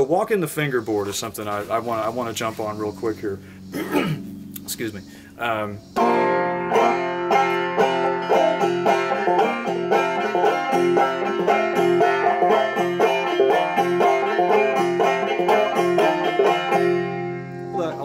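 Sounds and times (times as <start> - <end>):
banjo picking: 5.9 - 18.0.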